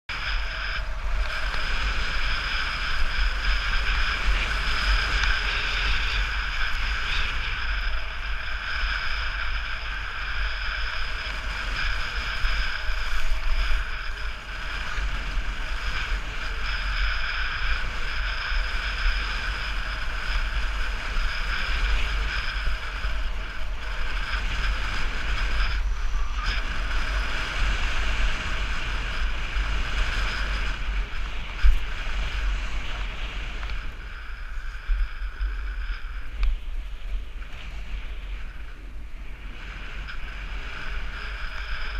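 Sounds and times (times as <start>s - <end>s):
wind rushing over microphone: 0.0s - 41.9s.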